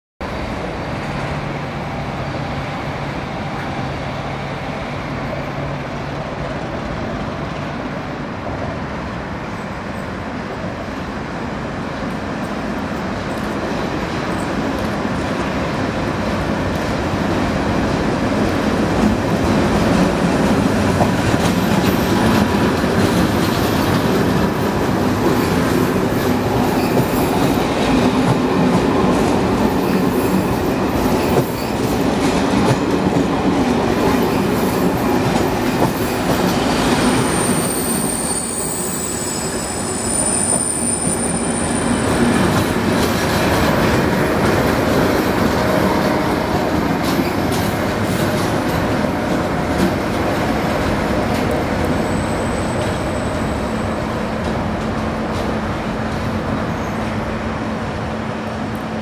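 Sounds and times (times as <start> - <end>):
diesel locomotive passing: 0.2 - 59.0
train wheels clicking over rail joints: 18.3 - 37.7, 41.8 - 52.1.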